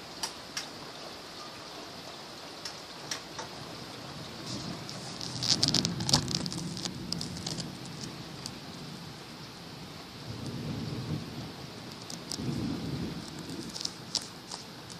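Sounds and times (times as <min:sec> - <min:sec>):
raindrops ticking on a surface: 0:00.0 - 0:14.9
steady rain: 0:00.0 - 0:14.9
low rumble of thunder: 0:03.5 - 0:14.2.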